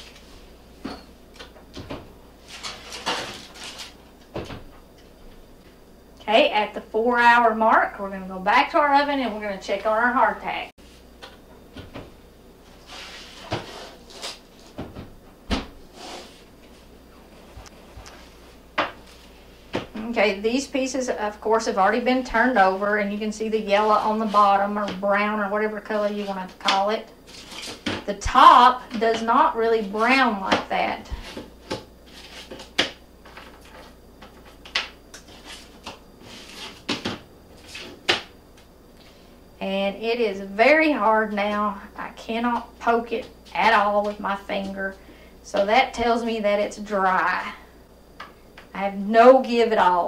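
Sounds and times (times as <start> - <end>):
baking sheet clattering: 1.8 - 4.7.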